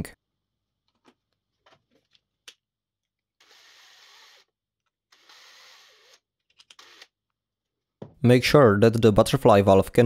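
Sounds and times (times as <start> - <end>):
cordless drill driving screws: 3.4 - 7.2.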